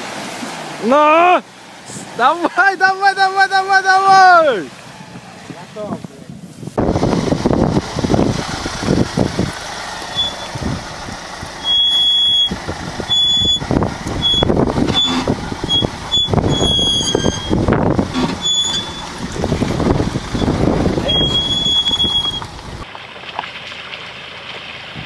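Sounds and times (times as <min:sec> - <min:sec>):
vehicle rumbling over rocks: 0:06.8 - 0:25.0
short high-pitched tones: 0:10.1 - 0:10.6, 0:11.6 - 0:12.5, 0:13.1 - 0:13.6.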